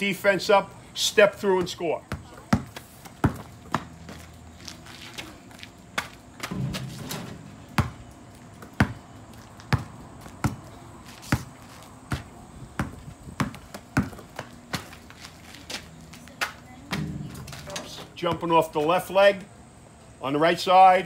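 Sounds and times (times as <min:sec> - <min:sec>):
basketball bouncing on asphalt: 0:01.3 - 0:17.6.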